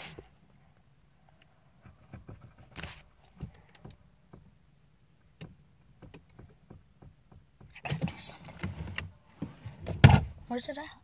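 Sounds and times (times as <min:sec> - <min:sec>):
soft clicks and knocks in car: 0:01.8 - 0:10.2.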